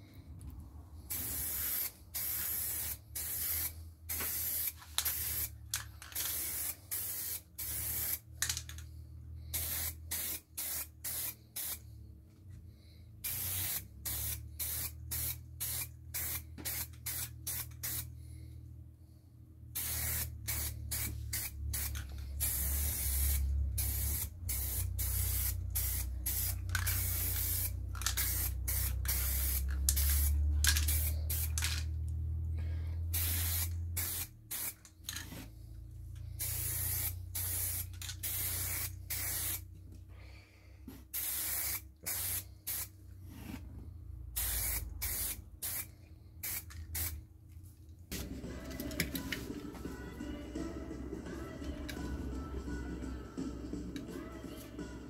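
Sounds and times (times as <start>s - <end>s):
spray paint can hissing: 1.1s - 8.7s, 9.5s - 11.8s, 13.2s - 18.1s, 19.8s - 31.9s, 33.1s - 35.0s, 36.4s - 39.7s, 41.1s - 42.9s, 44.4s - 47.2s.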